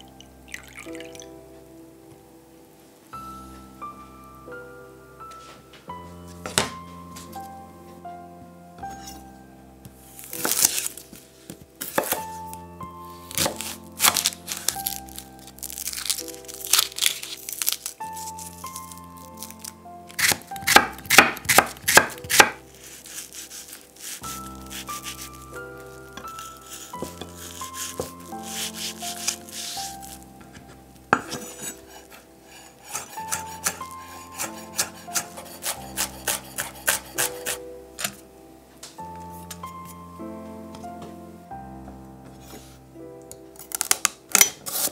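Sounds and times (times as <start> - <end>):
soft background music: 0.0 - 44.9
papery skin crinkling: 10.2 - 12.6, 13.2 - 20.6, 22.2 - 30.7
knife chopping on wooden board: 13.4 - 14.3, 20.2 - 22.6, 31.2 - 31.8, 32.8 - 38.2
knife cutting on a cutting board: 20.1 - 25.3, 26.2 - 30.2, 31.1 - 38.2.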